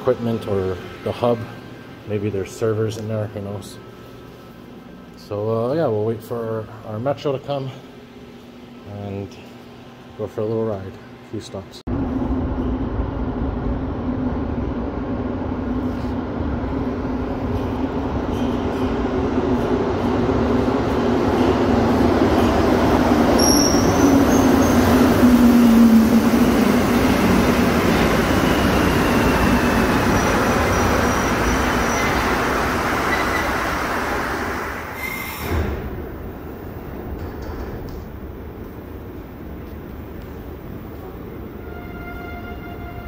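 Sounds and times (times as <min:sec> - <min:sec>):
metro train arriving: 0:00.0 - 0:10.2, 0:11.8 - 0:43.0
high squeals: 0:23.4 - 0:33.8.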